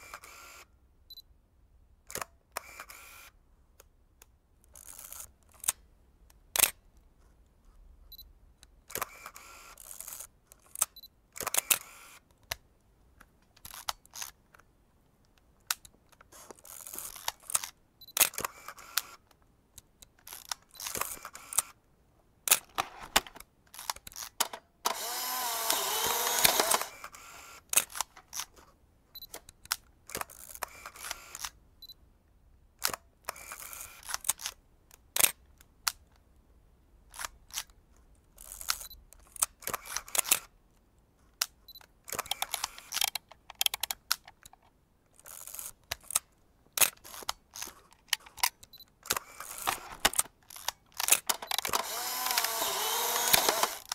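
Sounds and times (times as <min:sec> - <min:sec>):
camera shutter clicks: 0:00.0 - 0:00.7, 0:02.1 - 0:03.3, 0:08.9 - 0:12.2, 0:16.7 - 0:19.2, 0:20.3 - 0:21.8, 0:22.5 - 0:28.5, 0:29.3 - 0:31.6, 0:32.8 - 0:34.6, 0:38.4 - 0:40.5, 0:42.1 - 0:44.2, 0:46.8 - 0:53.9
rattly film winding: 0:23.7 - 0:28.5, 0:46.8 - 0:53.9.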